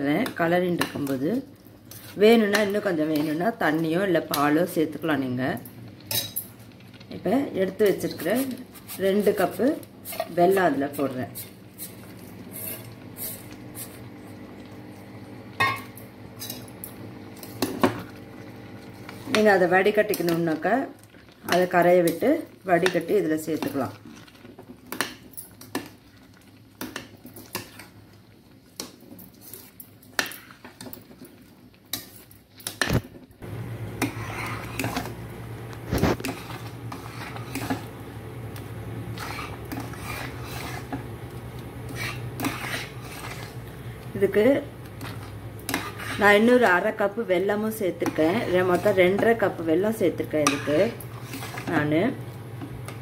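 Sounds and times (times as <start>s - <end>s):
spoon scraping steel pot: 11.4s - 14.0s, 34.0s - 35.2s, 35.9s - 37.9s, 39.1s - 41.1s, 41.8s - 43.6s, 45.0s - 46.7s, 47.8s - 49.5s, 50.3s - 51.8s
spoon stirring thick pudding: 36.2s - 37.9s, 39.2s - 43.6s, 45.0s - 46.7s.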